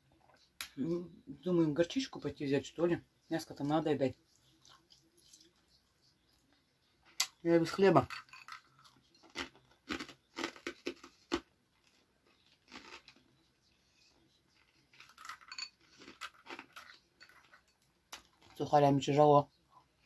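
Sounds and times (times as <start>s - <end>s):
croutons crunching while chewed: 8.5s - 13.2s, 14.6s - 17.4s.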